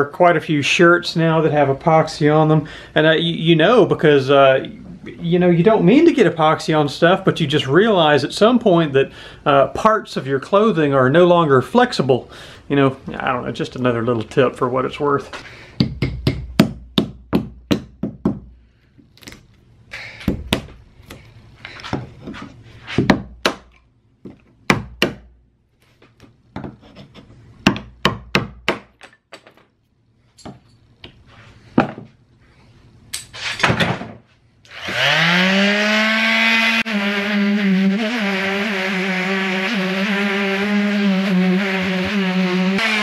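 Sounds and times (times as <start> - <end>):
chisel scraping and chipping: 26.7 - 27.3
electric palm sander running: 34.7 - 43.0.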